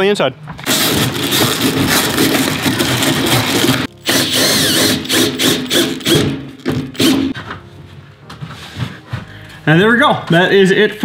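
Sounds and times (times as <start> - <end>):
cordless drill running: 0.7 - 6.4.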